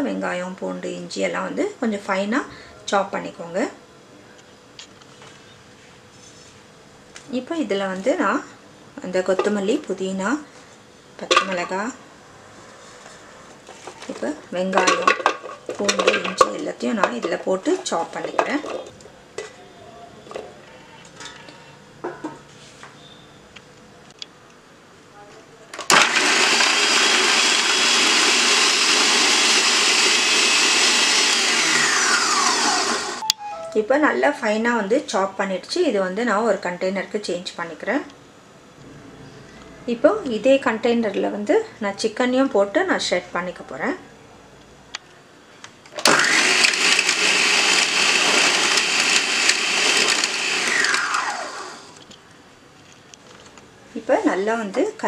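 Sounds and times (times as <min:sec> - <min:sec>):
electric chopper motor whining: 0:28.6 - 0:33.2, 0:46.0 - 0:52.0.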